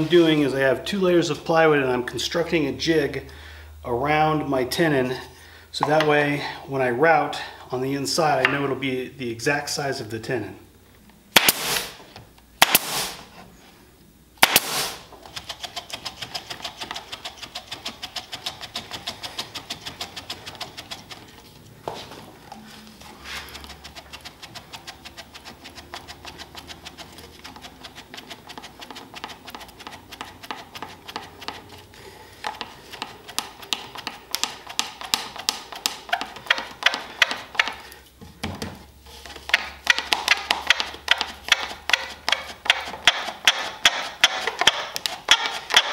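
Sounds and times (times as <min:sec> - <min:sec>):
nail gun shots: 0:11.4 - 0:12.0, 0:12.6 - 0:13.2, 0:14.4 - 0:15.0.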